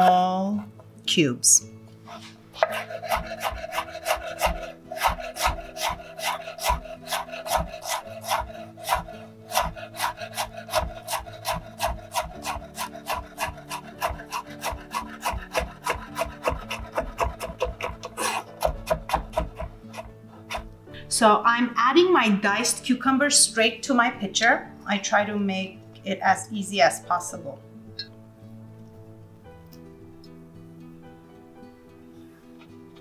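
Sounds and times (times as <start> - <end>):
knife chopping on wooden board: 2.6 - 20.8.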